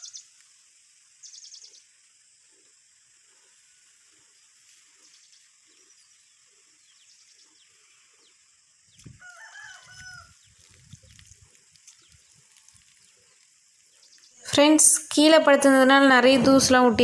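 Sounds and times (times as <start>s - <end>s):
rooster crowing: 9.2s - 10.4s
low rumbling noise: 15.4s - 17.0s.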